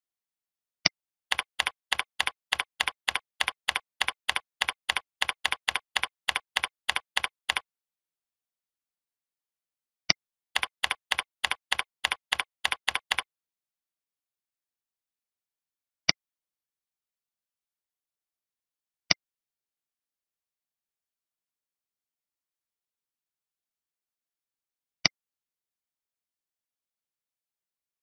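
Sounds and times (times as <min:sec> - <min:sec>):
keyboard keystrokes: 0:01.3 - 0:07.6, 0:10.6 - 0:13.3
mouse click: 0:01.3 - 0:07.6, 0:10.6 - 0:13.3.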